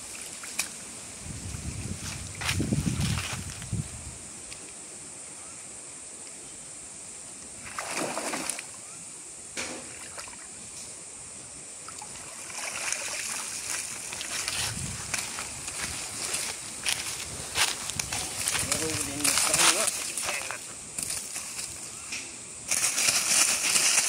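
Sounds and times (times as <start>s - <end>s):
steady background hiss: 0.0s - 24.0s
footsteps on dry leaves: 1.5s - 3.8s, 13.4s - 21.8s, 22.7s - 24.0s
water splashing and sloshing: 7.6s - 8.8s, 9.6s - 10.7s, 11.8s - 20.5s.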